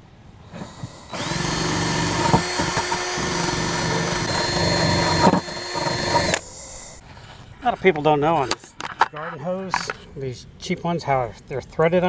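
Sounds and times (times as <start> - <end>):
drill with wire brush scrubbing: 0.5 - 7.0.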